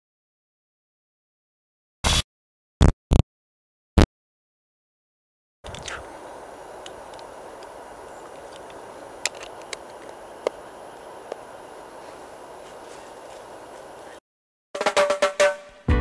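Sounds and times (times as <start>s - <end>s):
forest ambience hiss: 5.7s - 14.2s.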